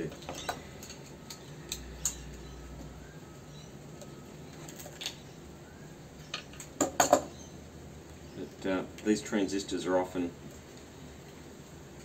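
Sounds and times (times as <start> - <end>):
clicks and clinks of small parts: 0.0 - 2.4.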